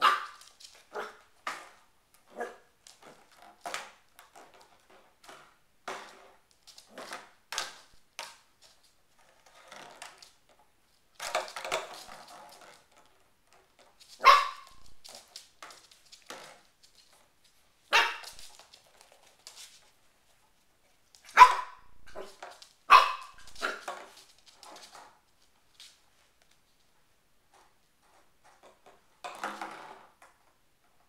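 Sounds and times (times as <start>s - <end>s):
puppy barking and yipping: 0.0s - 1.2s, 14.2s - 14.9s, 17.9s - 18.4s, 21.3s - 23.9s.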